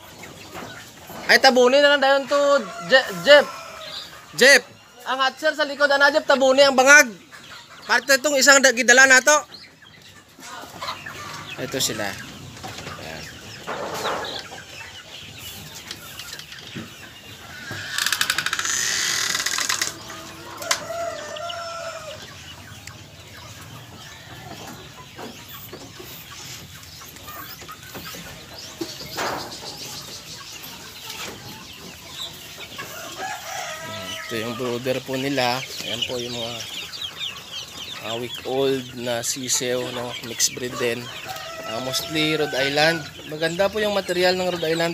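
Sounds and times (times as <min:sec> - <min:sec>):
hens clucking: 0:00.0 - 0:44.9.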